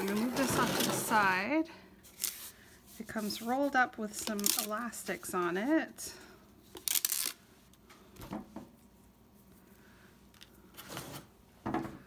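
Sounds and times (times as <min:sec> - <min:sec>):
plastic wrap rustling: 0:00.0 - 0:01.4, 0:02.1 - 0:05.1, 0:06.7 - 0:07.4.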